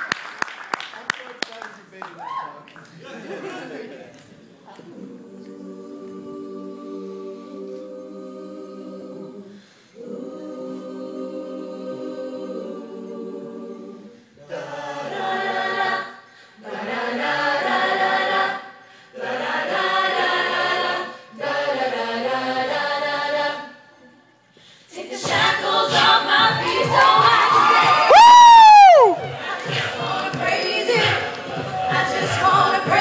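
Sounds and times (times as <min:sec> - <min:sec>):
choir singing a gospel song: 0:04.7 - 0:28.2, 0:29.0 - 0:33.0
audience cheering and shouting: 0:27.2 - 0:29.4.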